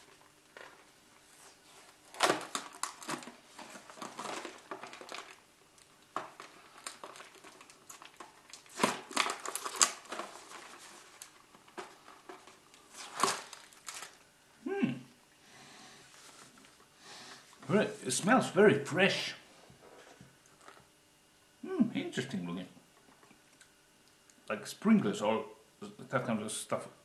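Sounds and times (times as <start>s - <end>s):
candy wrappers crinkling: 2.1s - 14.3s.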